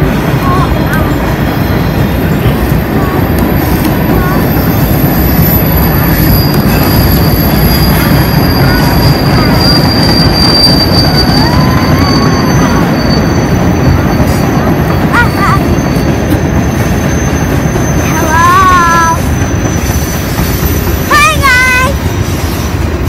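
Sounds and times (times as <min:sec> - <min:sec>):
train wheels rumbling on rail: 0:00.0 - 0:23.0
high-pitched squeal: 0:00.1 - 0:23.0.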